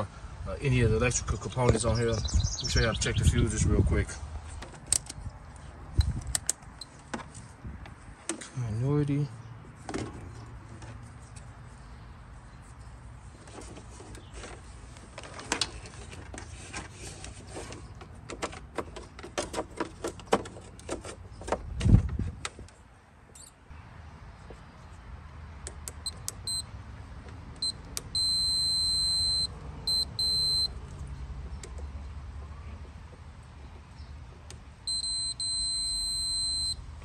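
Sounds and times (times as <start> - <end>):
multimeter continuity beeps: 26.0 - 26.7, 27.6 - 30.7, 34.9 - 36.8.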